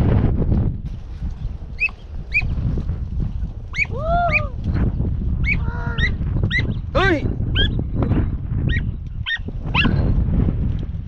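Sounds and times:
hounds yelping and baying: 5.4 - 6.8, 8.7 - 10.0.

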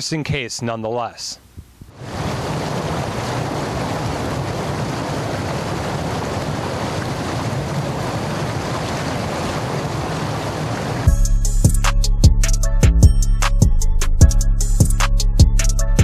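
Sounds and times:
floodwater rushing through culvert: 2.0 - 11.1.

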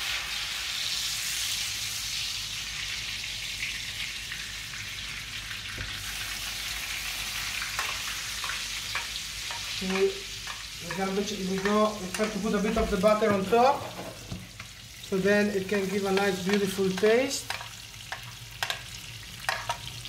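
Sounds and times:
butter sizzling in frying pan: 0.0 - 20.0
spoon clicking against pan: 7.8 - 12.4, 16.1 - 19.9.

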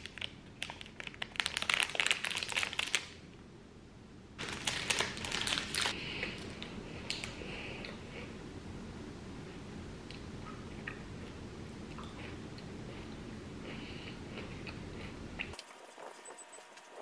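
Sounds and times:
plastic wrapper crinkling: 0.0 - 3.2, 4.4 - 6.5.

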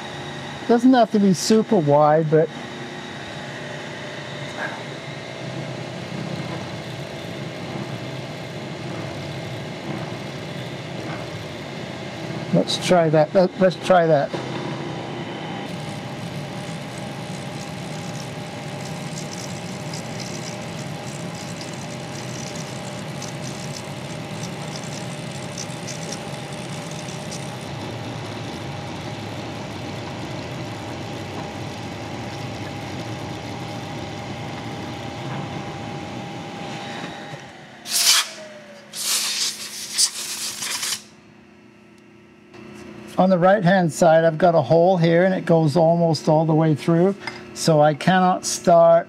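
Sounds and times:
milling machine spindle running: 0.0 - 38.8
end mill cutting metal: 6.6 - 34.9
compressed air blasts: 37.9 - 41.1.

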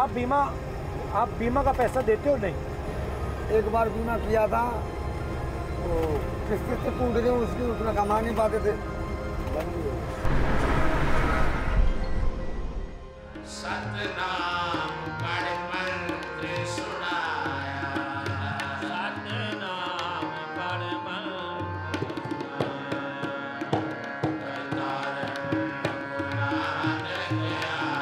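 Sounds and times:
held drone: 8.8 - 13.5
tabla playing a steady rhythm: 13.3 - 28.0.

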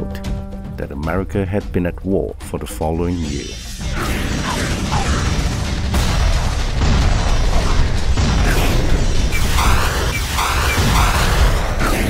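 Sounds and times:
booms and explosions: 3.2 - 12.0.

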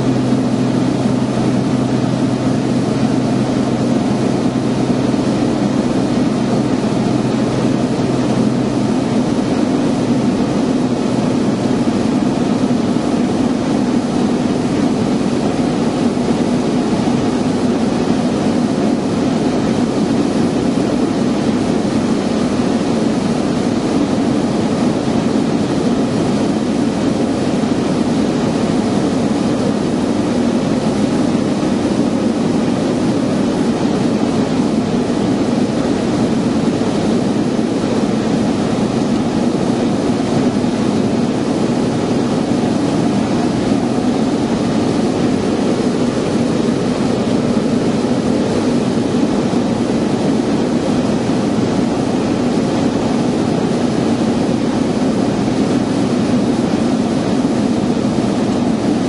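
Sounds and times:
airplane engine drone in cabin: 0.0 - 59.0.

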